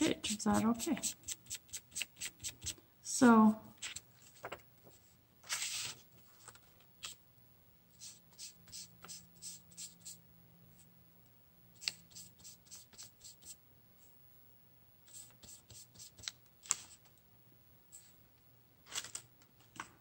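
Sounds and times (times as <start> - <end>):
paintbrush dabbing on paper: 0.0 - 2.8, 8.0 - 10.2, 11.8 - 13.6, 15.1 - 16.3
paper rustling: 3.8 - 7.2, 15.1 - 17.1, 18.8 - 20.0.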